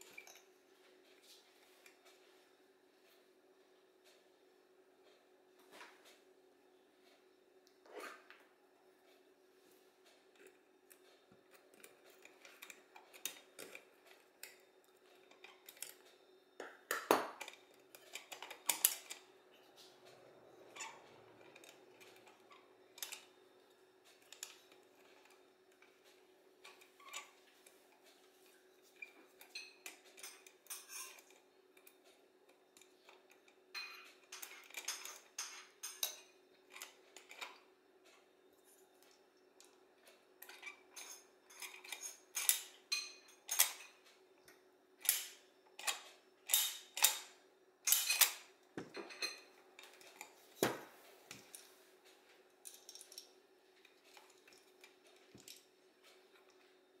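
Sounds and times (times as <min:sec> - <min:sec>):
faint steady hum: 0:00.0 - 0:57.0
small metal parts clicking: 0:11.0 - 0:16.2, 0:16.9 - 0:19.9, 0:29.0 - 0:31.9, 0:32.8 - 0:37.6, 0:40.4 - 0:43.9, 0:45.0 - 0:48.5.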